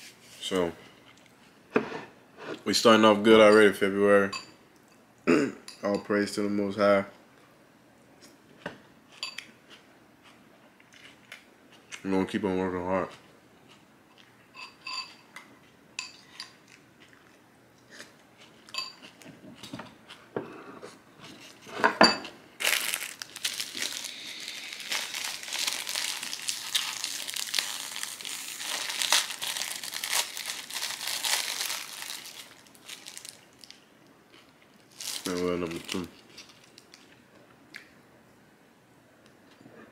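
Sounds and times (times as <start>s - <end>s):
crunching while eating: 22.6s - 37.2s.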